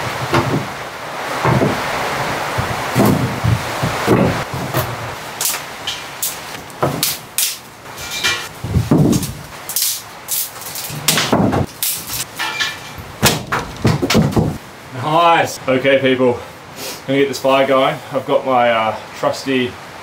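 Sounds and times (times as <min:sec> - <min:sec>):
sticks knocking on floor and stone: 0:00.2 - 0:00.7, 0:01.4 - 0:01.8, 0:02.6 - 0:14.6.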